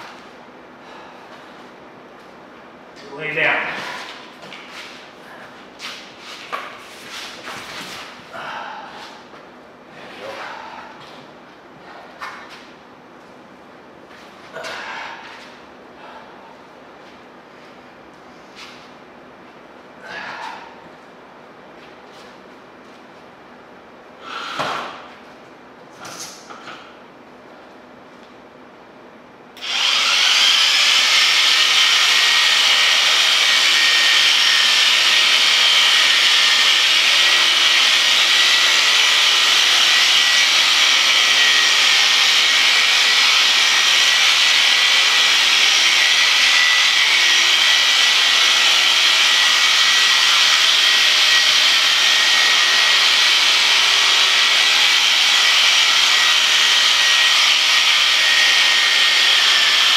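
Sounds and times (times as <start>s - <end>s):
electric shears whining: 29.6s - 59.9s.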